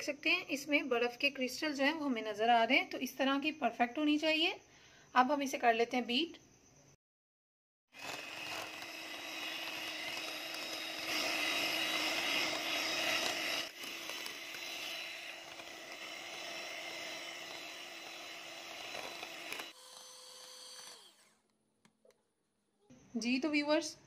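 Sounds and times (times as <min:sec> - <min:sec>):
electric hand mixer whipping cream: 0:07.9 - 0:21.4.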